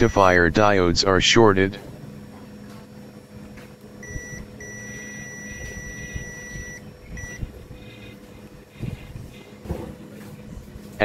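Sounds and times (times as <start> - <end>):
multimeter continuity beeps: 0.0 - 0.7, 4.0 - 8.6.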